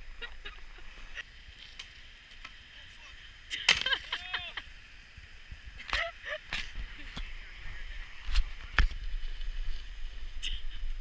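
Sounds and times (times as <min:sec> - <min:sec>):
person crying out: 0:04.1 - 0:04.6.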